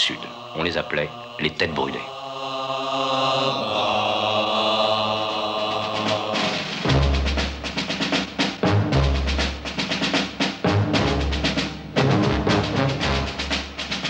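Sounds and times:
fast driving drums: 5.7s - 14.0s.

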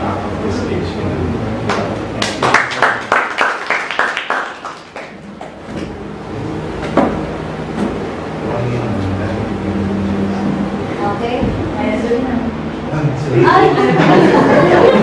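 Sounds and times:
people clapping: 1.6s - 5.6s.

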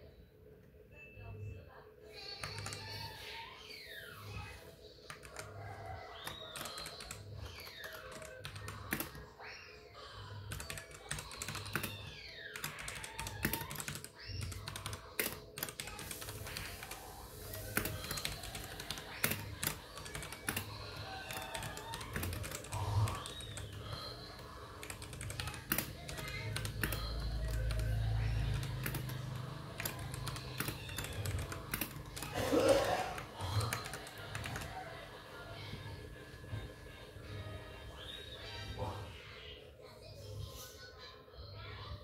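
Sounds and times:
computer keyboard keys clicking: 2.3s - 3.2s, 5.0s - 9.3s, 10.4s - 35.0s.

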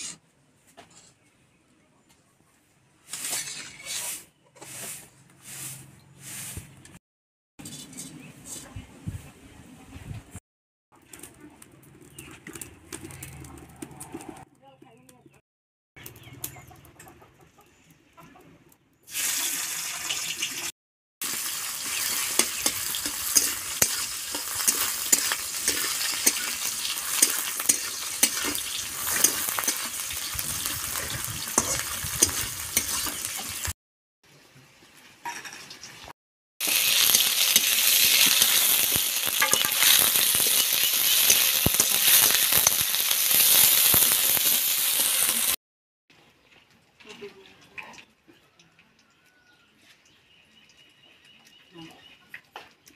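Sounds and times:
metal spatula scraping pan: 0.0s - 0.2s, 3.1s - 6.6s, 7.6s - 8.7s, 21.8s - 33.7s, 36.6s - 42.8s
fruit sizzling in hot oil: 19.1s - 33.8s, 36.6s - 45.6s.

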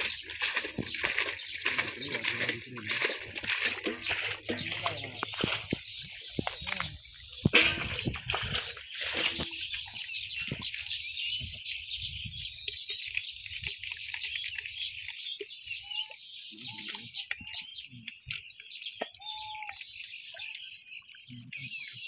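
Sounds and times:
hands splashing in muddy water: 0.0s - 11.6s
birds chirping: 0.0s - 22.0s.

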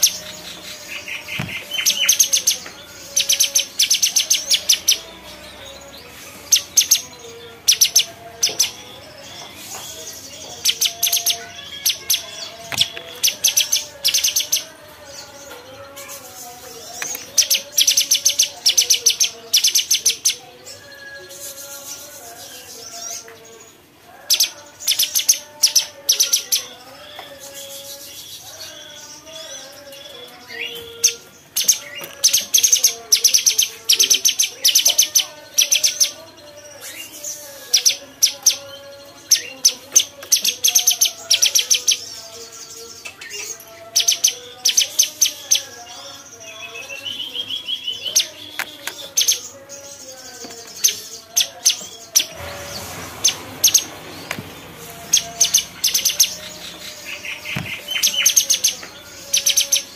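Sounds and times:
short rush of noise: 52.4s - 54.9s.

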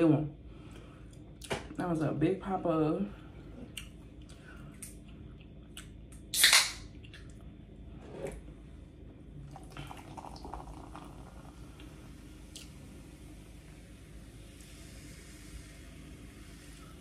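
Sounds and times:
cola fizzing in a mug: 9.4s - 17.0s.

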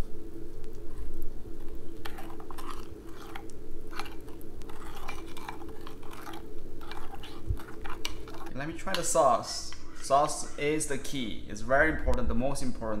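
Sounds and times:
utensil stirring thick sauce: 0.6s - 11.3s.

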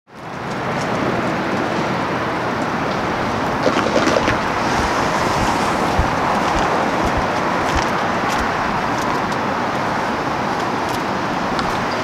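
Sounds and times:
road traffic noise: 0.1s - 12.0s.

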